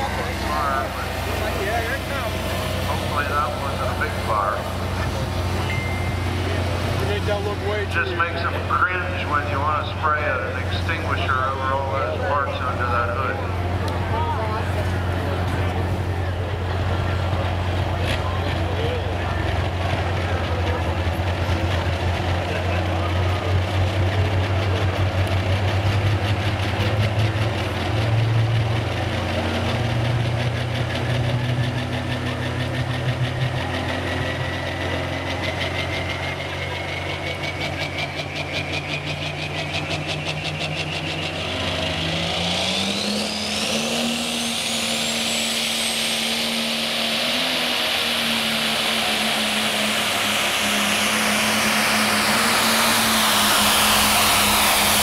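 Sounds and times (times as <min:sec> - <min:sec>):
diesel tractor engine idling: 0:00.0 - 0:42.4
engine revving: 0:00.0 - 0:55.0.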